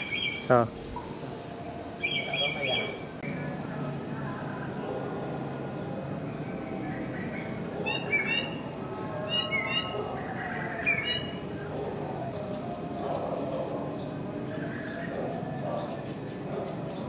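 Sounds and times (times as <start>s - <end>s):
parrot screeching calls: 7.8s - 8.6s, 9.3s - 11.6s.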